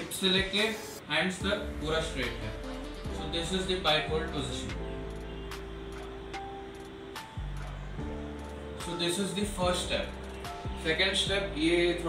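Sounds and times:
background music sustained notes: 0.0s - 12.0s.

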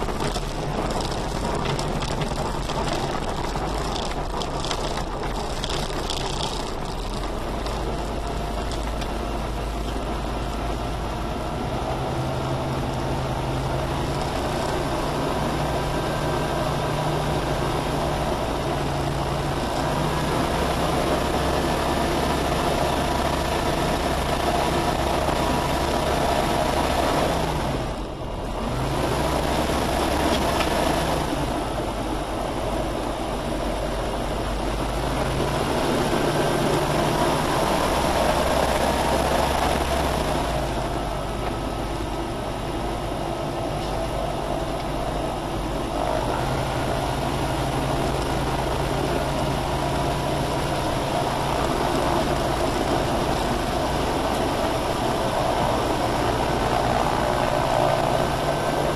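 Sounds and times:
aircraft engine and propeller running: 0.0s - 58.9s.

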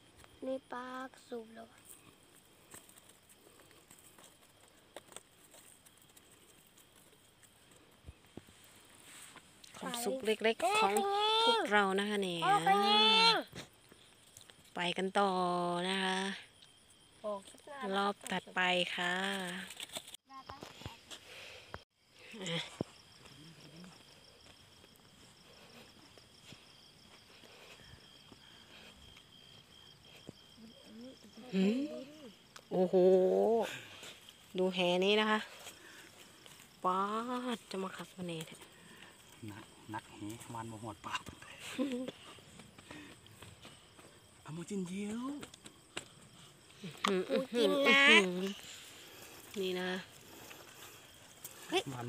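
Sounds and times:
fast pulsing insect chirp: 0.0s - 52.0s
insects high trill: 0.0s - 52.0s
faint clicks and rustles: 1.7s - 11.0s, 19.2s - 21.8s.

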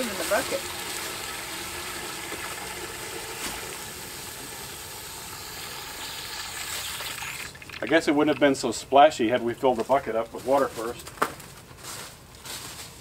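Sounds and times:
water spilling onto plastic trough: 0.0s - 8.7s
hose water swirling in bucket: 0.0s - 8.9s.

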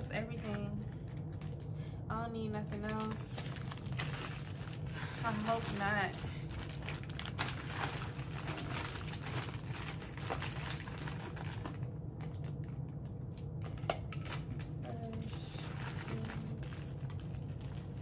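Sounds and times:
steady low hum: 0.0s - 18.0s
bags rustling and crinkling: 2.7s - 12.8s, 13.7s - 18.0s.

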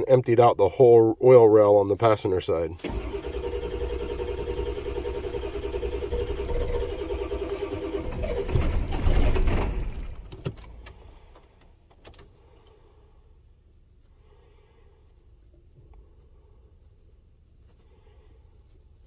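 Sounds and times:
starter cranking diesel engine: 2.8s - 11.6s.

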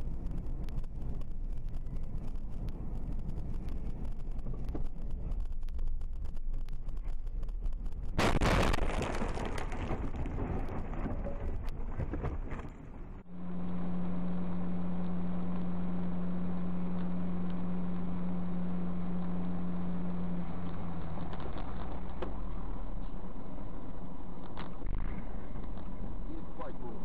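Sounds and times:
in-car drone with low hum: 0.0s - 27.0s
noisy rumble: 0.0s - 27.0s
road and wind noise: 0.0s - 27.0s
loud vehicle crash: 8.2s - 13.2s.

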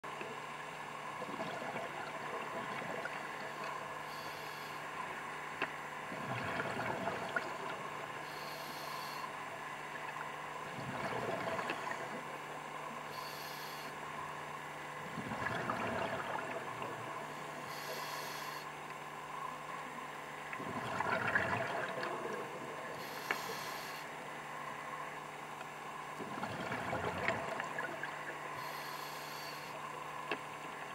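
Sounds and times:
faint hum: 0.0s - 30.9s
exhaled bubbles rumbling: 1.1s - 3.9s, 6.0s - 8.2s, 9.9s - 12.4s, 15.0s - 17.7s, 20.4s - 23.0s, 26.2s - 28.6s
regulator inhale hiss: 3.4s - 5.0s, 8.2s - 9.4s, 13.1s - 14.0s, 17.6s - 18.7s, 23.0s - 24.1s, 28.6s - 29.8s.

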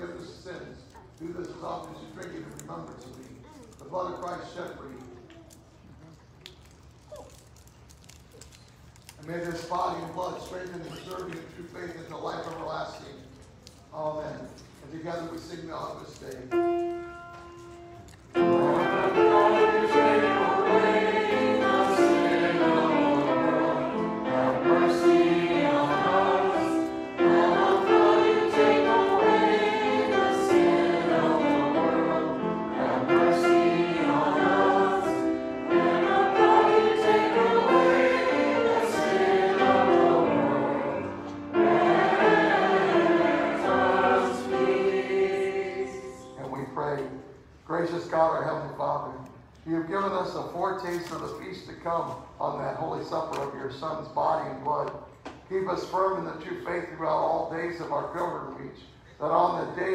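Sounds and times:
keyboard accompaniment: 16.5s - 46.2s
group singing a hymn: 18.3s - 46.8s.

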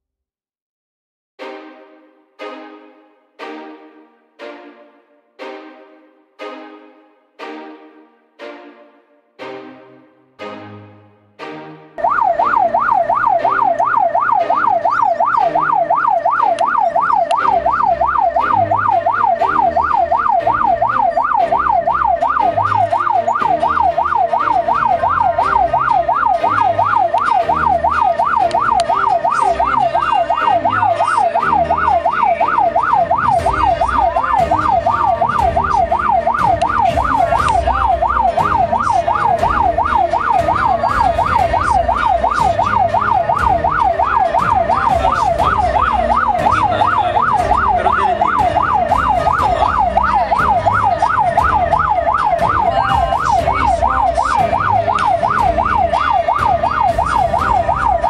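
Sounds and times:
ambulance siren yelping: 12.0s - 58.0s.

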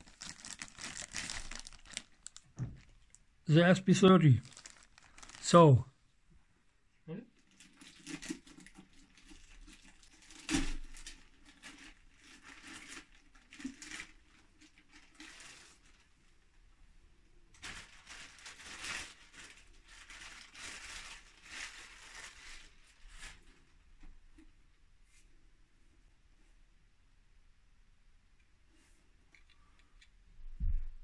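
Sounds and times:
packaging rustling and crinkling: 0.0s - 3.2s, 3.9s - 5.8s, 7.5s - 16.1s, 17.5s - 23.8s.

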